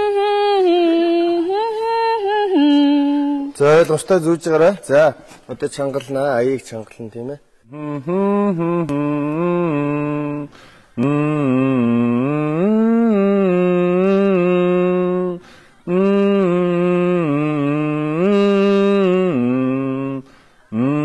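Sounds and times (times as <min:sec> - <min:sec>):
man humming a melody: 0:07.7 - 0:21.0.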